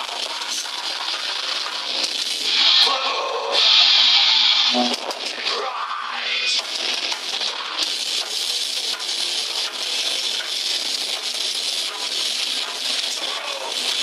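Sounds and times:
distorted live metal band: 0.0 - 14.0.

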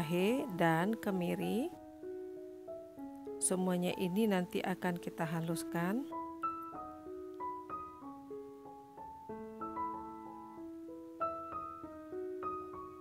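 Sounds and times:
soft piano music: 0.0 - 13.0.

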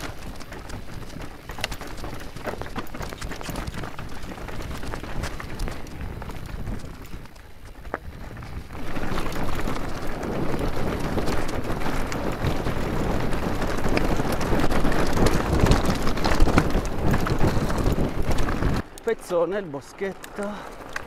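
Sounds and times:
bike tyres crunching over gravel: 0.0 - 21.0
wind buffeting microphone: 0.0 - 21.0.

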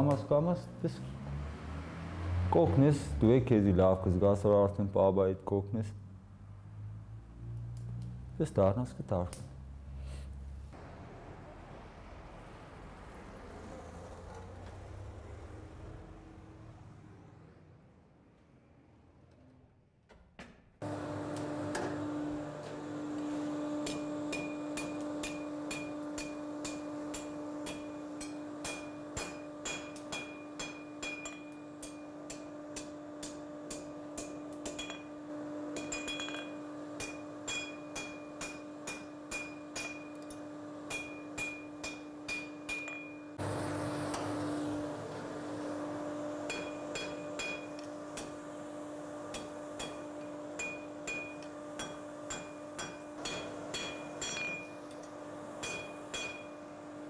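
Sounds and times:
forge hum: 20.8 - 57.0
hammer striking iron on anvil: 23.8 - 43.4, 46.4 - 48.4, 49.3 - 55.0, 55.6 - 56.8.

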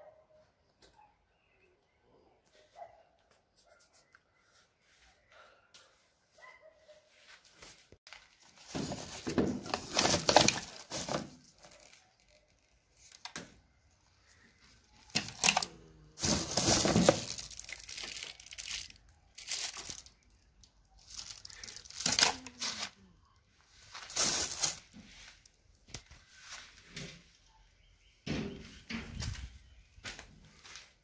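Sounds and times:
plastic bag crinkling: 8.1 - 13.2, 14.9 - 23.0, 23.8 - 25.4.

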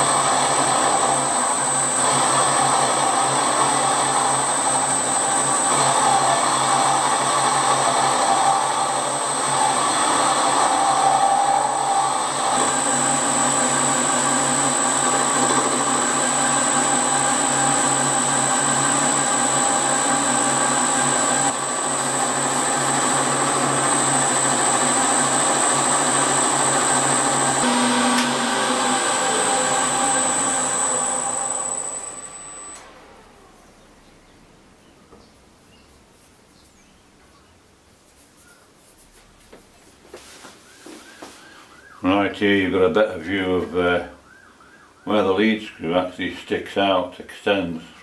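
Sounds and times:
milling machine whining: 0.0 - 33.7
machine running down: 0.0 - 33.8.

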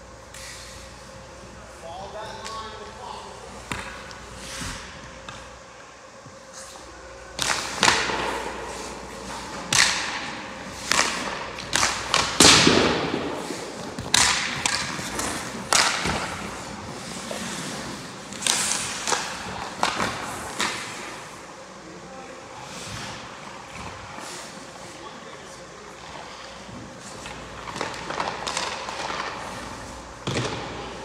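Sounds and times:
skate blades scraping ice: 0.3 - 1.2, 6.5 - 21.4
pucks knocking against pads and ice: 3.6 - 4.2, 7.4 - 16.7, 17.3 - 21.1, 27.0 - 29.6, 30.2 - 30.9.

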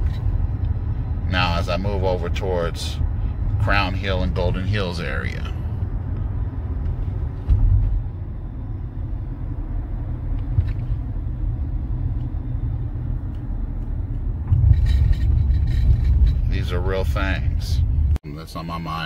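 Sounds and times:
road and engine noise in car: 0.0 - 19.0
car bump: 6.8 - 8.1.

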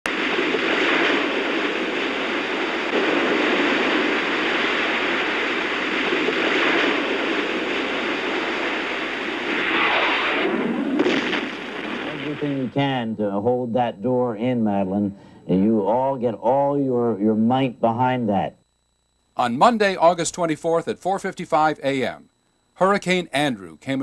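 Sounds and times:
hurricane wind roaring: 0.1 - 12.7.

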